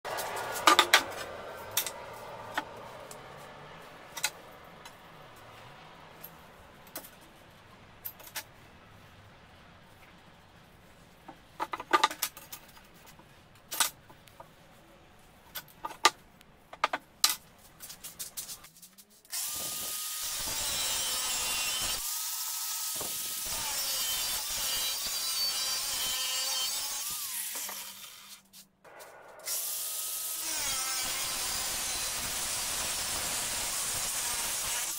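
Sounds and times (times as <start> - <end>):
angle grinder cutting steel: 19.3 - 28.4, 29.4 - 34.9.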